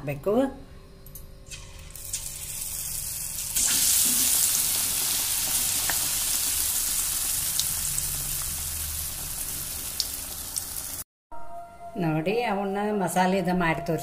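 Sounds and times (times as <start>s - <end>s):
batter sizzling in hot oil: 1.5s - 11.0s.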